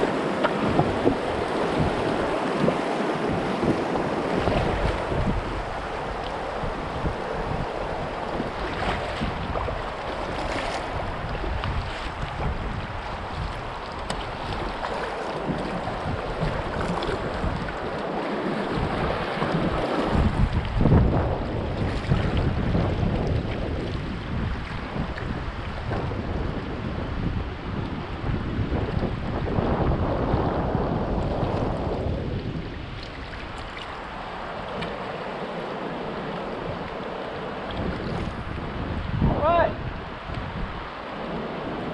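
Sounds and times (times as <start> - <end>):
kayak paddle strokes in water: 0.0 - 39.1
river current washing: 0.0 - 41.9
wind rumbling on microphone: 0.0 - 41.9
river water hissing: 32.8 - 38.6.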